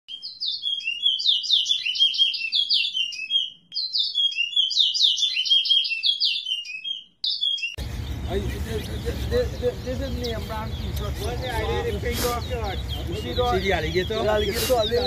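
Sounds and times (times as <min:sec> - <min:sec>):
songbird singing: 0:00.1 - 0:15.0
outdoor background noise: 0:07.0 - 0:15.0.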